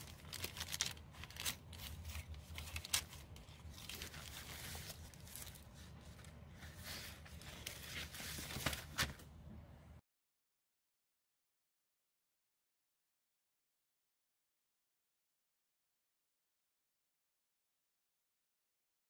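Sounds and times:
pages flicking as they turn: 0:00.0 - 0:09.3
paper pages rustling and crinkling: 0:00.0 - 0:09.3.

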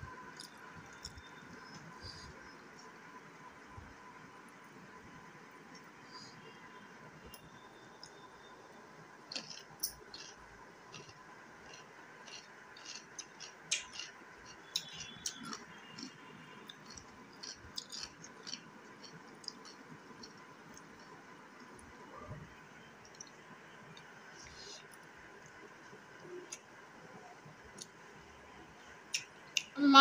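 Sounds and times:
person chewing crunchy food: 0:09.3 - 0:21.2.

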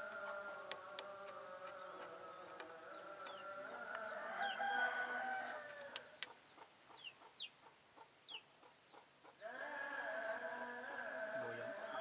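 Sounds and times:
long drawn-out animal call: 0:09.4 - 0:12.0.

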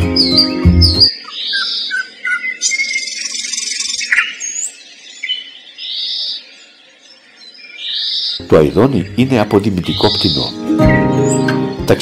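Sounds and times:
nightingale singing: 0:00.0 - 0:12.0.

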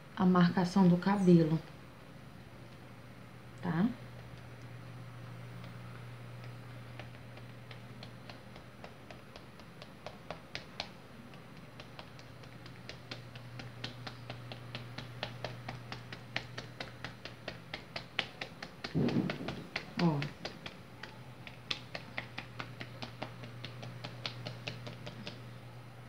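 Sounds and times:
plastic tool tapping dough: 0:05.6 - 0:25.4
low hum: 0:18.9 - 0:20.4.

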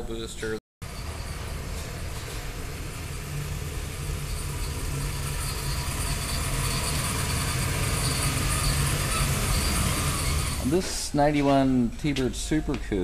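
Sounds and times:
car engine low rumble: 0:00.8 - 0:10.8.

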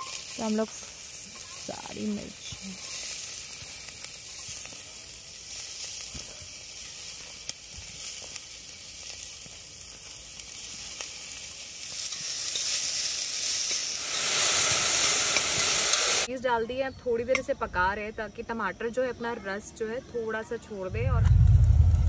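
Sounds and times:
vegetables sizzling in a pan: 0:00.0 - 0:16.3.

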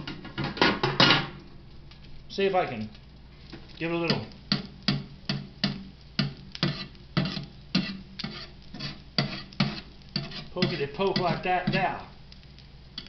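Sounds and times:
metal spatula tapping on griddle: 0:04.1 - 0:08.4, 0:09.2 - 0:11.9.

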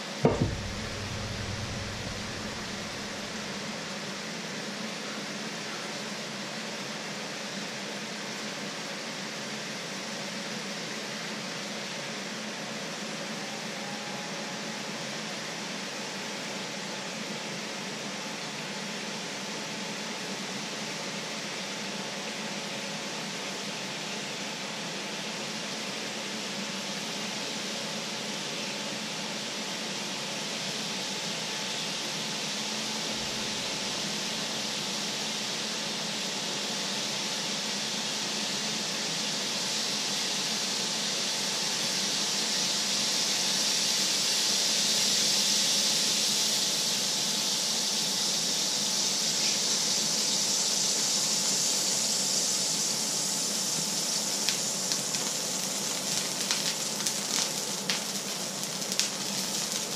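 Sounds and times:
crackling pops: 0:00.2 - 0:03.6, 0:54.5 - 0:59.9
water sizzling in hot pan: 0:00.2 - 0:04.4, 0:25.2 - 0:59.9.

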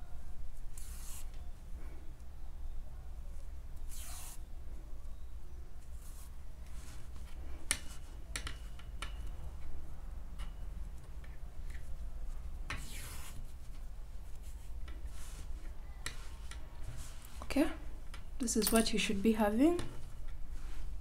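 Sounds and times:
yarn rustling: 0:11.0 - 0:21.0
needle clicking against metal ring: 0:18.1 - 0:20.4.

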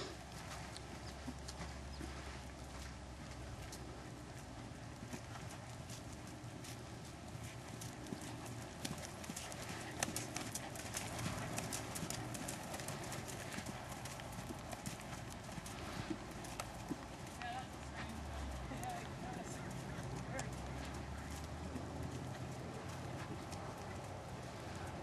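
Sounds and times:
horse hoofbeats on sand: 0:00.0 - 0:25.0.

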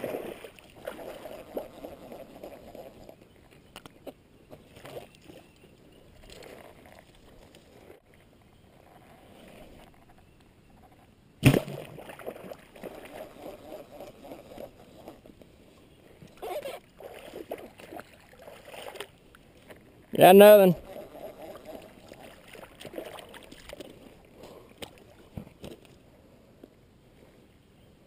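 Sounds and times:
wading through muddy water: 0:00.0 - 0:03.4, 0:16.4 - 0:25.4.

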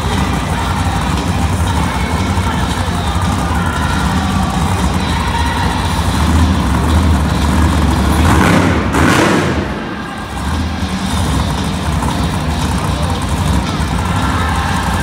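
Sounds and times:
truck engines idling: 0:00.0 - 0:15.0.

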